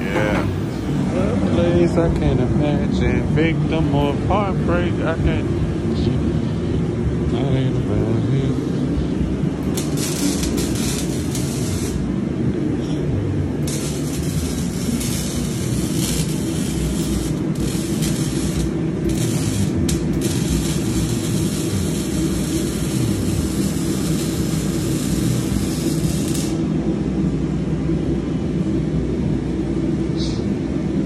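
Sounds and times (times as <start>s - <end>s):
arc welding hiss and crackle: 0.0s - 1.0s, 9.6s - 12.2s, 13.4s - 26.8s
low workshop rumble: 0.0s - 31.0s.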